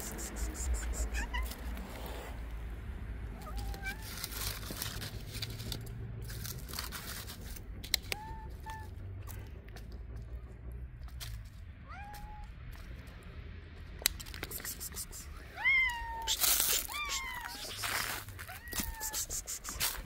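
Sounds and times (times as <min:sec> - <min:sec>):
cat mewing: 0:00.0 - 0:02.1, 0:03.3 - 0:04.4, 0:14.6 - 0:20.0
rustling: 0:03.3 - 0:13.3, 0:16.2 - 0:20.0
scattered clicks: 0:13.8 - 0:15.3.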